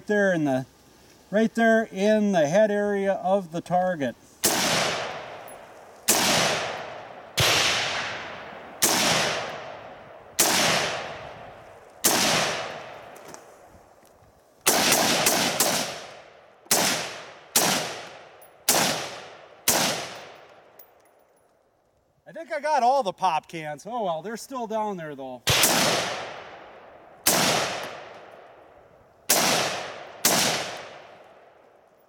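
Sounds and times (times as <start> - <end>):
rifle shots: 4.4 - 11.2, 12.0 - 13.2, 14.6 - 20.5, 25.5 - 28.4, 29.3 - 31.5.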